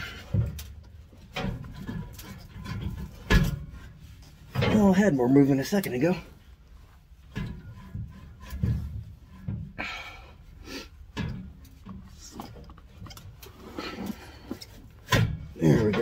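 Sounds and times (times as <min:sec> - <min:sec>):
metal exhaust pipe clunking: 0:00.0 - 0:16.0.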